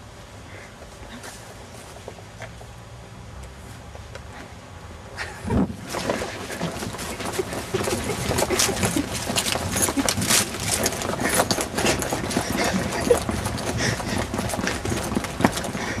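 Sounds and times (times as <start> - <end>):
footsteps running on grass: 5.8 - 16.0.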